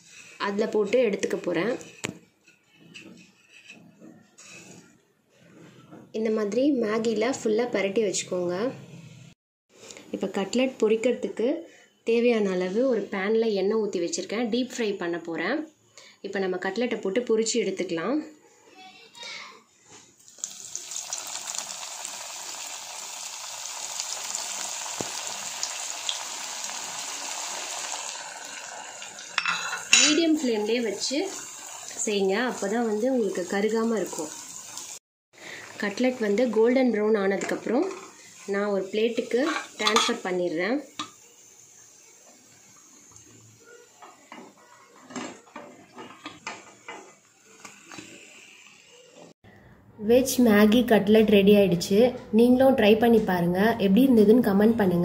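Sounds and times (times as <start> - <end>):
steel spatula scraping frying pan: 0.0 - 5.0, 29.2 - 33.5, 37.4 - 40.4
cutlets sizzling in hot oil: 20.2 - 45.3, 46.4 - 49.2.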